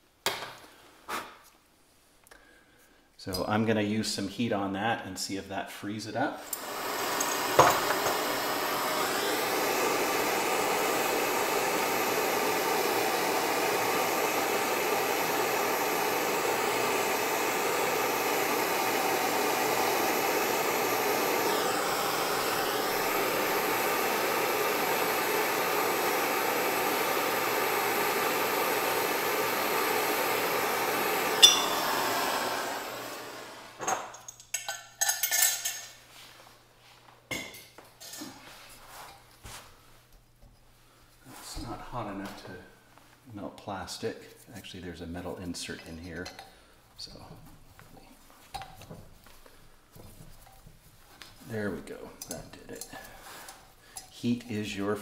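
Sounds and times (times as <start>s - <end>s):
propane torch hissing: 6.4s - 34.1s, 51.4s - 55.0s.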